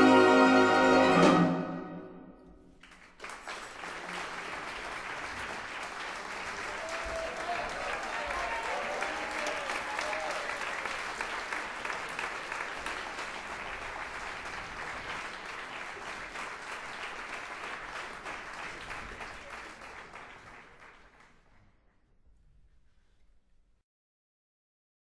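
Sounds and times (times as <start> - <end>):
audience applauding: 2.7 - 21.8.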